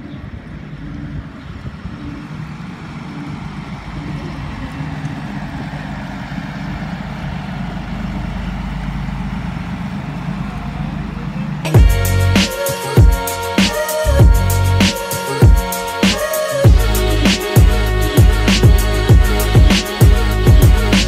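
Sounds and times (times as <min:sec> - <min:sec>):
boat motor humming: 0:00.0 - 0:21.0.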